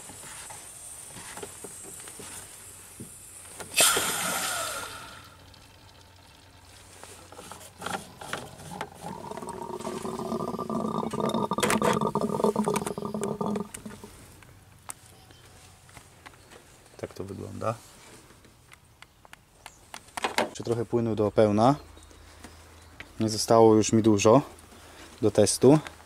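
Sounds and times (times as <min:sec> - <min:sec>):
sharp hiss of released pressure: 0:00.0 - 0:05.3.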